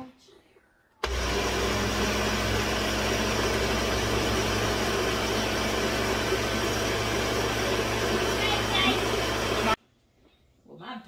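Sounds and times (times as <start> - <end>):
blender running: 1.0 - 9.8.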